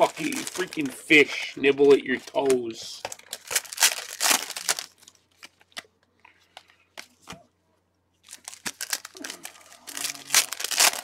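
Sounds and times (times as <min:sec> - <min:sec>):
foil wrappers crinkling and tearing: 0:00.0 - 0:05.8, 0:08.2 - 0:11.0.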